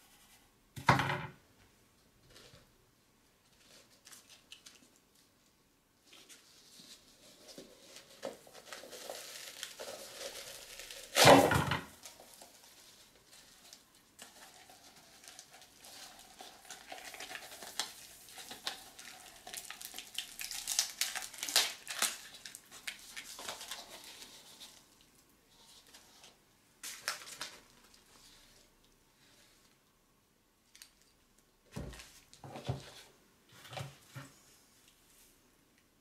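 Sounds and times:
paper and cardboard rustling: 6.0 - 24.9.

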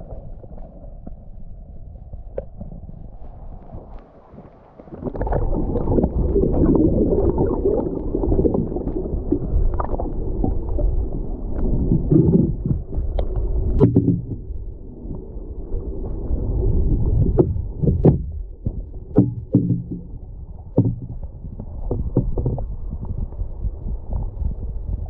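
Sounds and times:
muffled underwater river rushing: 0.0 - 25.0
underwater clicks and knocks: 2.3 - 2.8, 11.6 - 15.2, 17.2 - 25.0.

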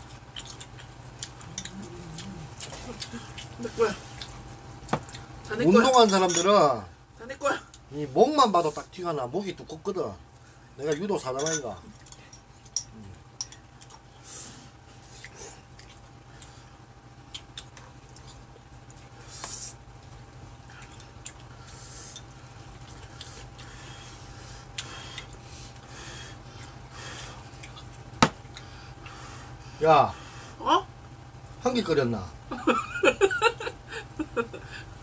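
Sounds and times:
chewing: 0.0 - 5.5, 12.6 - 14.2, 15.0 - 25.9, 26.5 - 29.2
low hum: 0.0 - 5.6.

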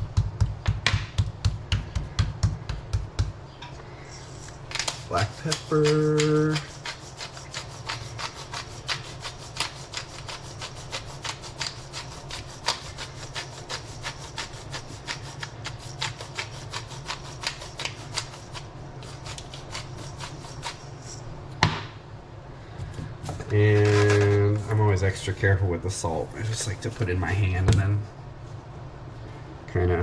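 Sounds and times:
pepper grinder grating: 4.1 - 21.3.

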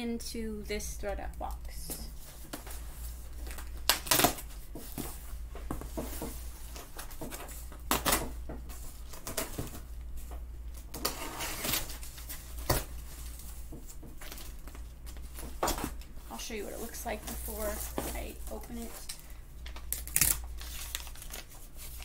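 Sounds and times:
steady low hum: 0.0 - 22.0
scissors cutting packing tape: 3.9 - 4.4, 19.9 - 21.5.

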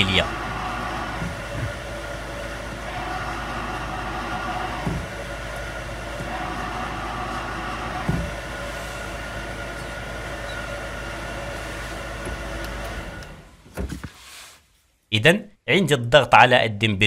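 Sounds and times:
grinding clutch bearing: 0.0 - 13.6
car engine idling: 0.0 - 13.7.

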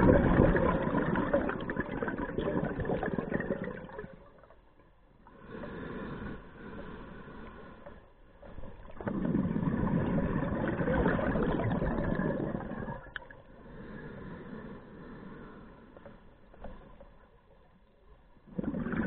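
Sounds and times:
exhaled bubbles rushing: 0.0 - 4.5, 8.8 - 13.4, 18.5 - 19.0
breathing noise: 5.3 - 8.2, 13.5 - 16.2.

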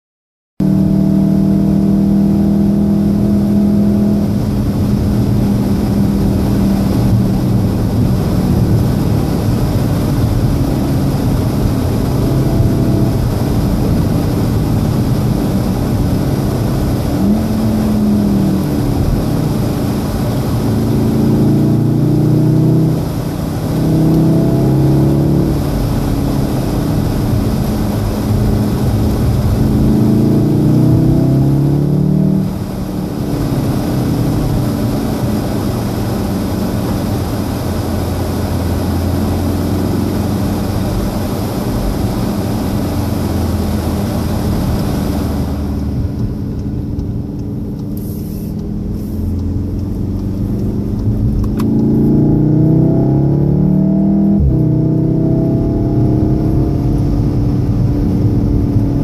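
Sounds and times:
car engine from inside cabin: 0.6 - 59.0
tyre and road noise: 4.2 - 59.0.

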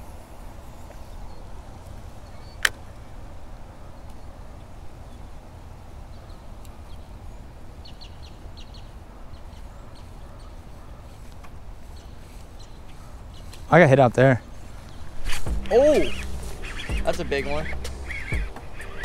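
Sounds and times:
high bird chirps: 2.2 - 2.7, 14.8 - 19.0
low outdoor rumble: 14.4 - 19.0.

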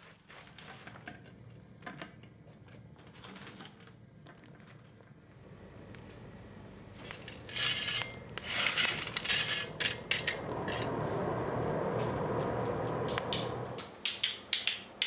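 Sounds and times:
coal clattering against metal: 7.0 - 10.9
shovel scraping through coal: 7.0 - 11.1
steady rushing noise: 9.8 - 13.9.

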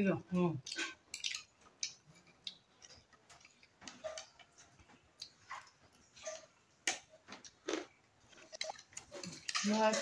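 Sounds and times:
people chewing: 0.6 - 10.0
forks clicking on a plate: 8.5 - 10.0.

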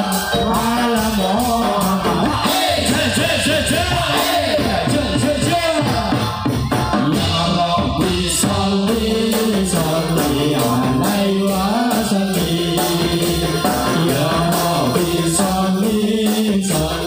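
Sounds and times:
sweeping melody: 0.0 - 2.3
jingling percussion: 0.0 - 17.0
person singing: 0.0 - 17.0.

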